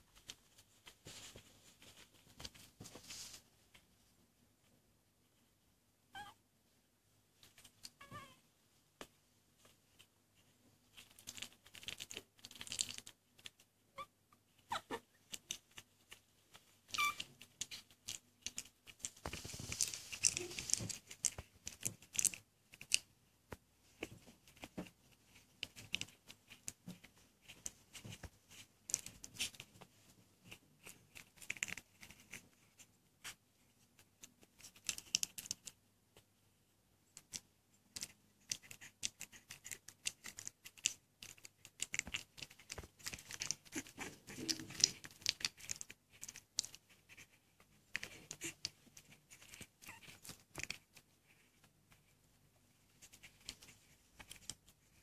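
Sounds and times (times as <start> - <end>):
puppies clicking and smacking: 9.0 - 13.8, 14.4 - 36.3, 37.1 - 55.0
puppy squeak: 14.7 - 15.0, 16.9 - 17.3.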